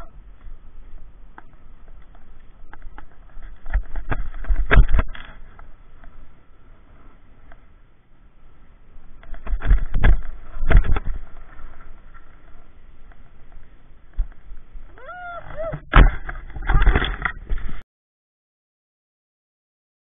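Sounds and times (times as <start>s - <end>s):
wind noise: 0.0s - 7.6s, 8.4s - 17.8s
bicycle rattling over bumps: 0.3s - 6.4s, 8.9s - 17.8s
person crying out: 15.0s - 15.8s.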